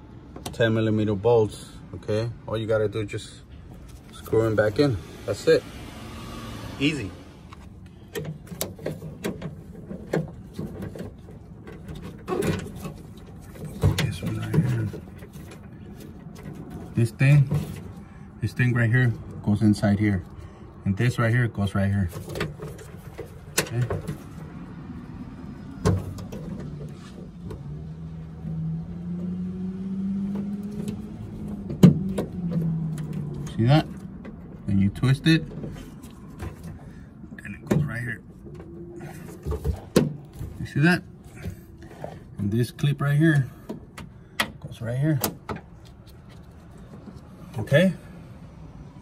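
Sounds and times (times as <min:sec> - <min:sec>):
parts clattering: 0:07.5 - 0:18.2, 0:21.9 - 0:24.7, 0:30.2 - 0:48.2.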